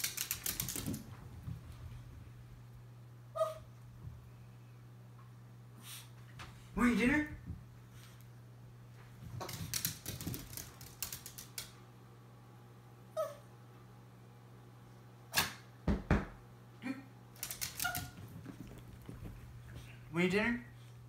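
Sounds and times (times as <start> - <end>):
dog nails clicking on floor: 0.0 - 1.2, 9.3 - 11.8, 17.4 - 19.2.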